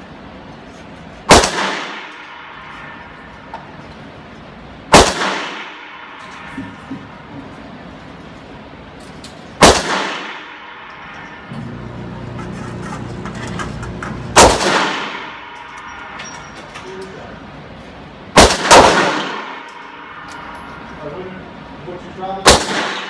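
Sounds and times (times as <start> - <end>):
handgun shots with ringing echo: 1.3 - 2.5, 4.9 - 6.2, 9.6 - 11.4, 14.3 - 16.2, 18.4 - 20.5, 22.4 - 23.0.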